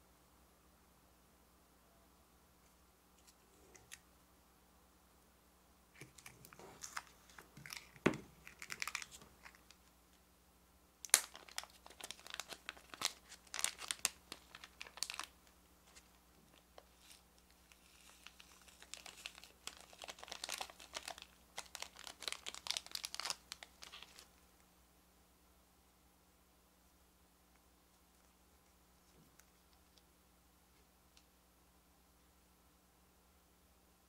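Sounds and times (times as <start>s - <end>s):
plastic packet crinkling: 6.0s - 9.8s, 11.1s - 24.3s.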